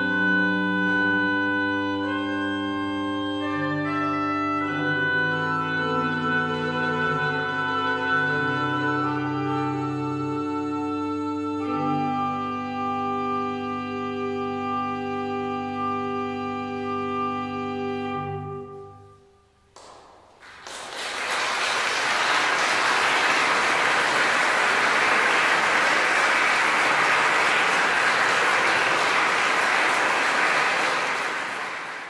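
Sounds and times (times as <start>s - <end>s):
pipe organ chord: 0.0s - 19.3s, 22.0s - 32.0s
audience applause: 19.8s - 32.0s.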